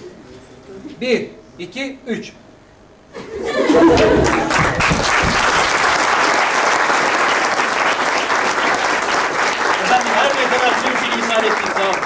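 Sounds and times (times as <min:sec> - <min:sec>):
audience applauding: 0:03.7 - 0:12.0.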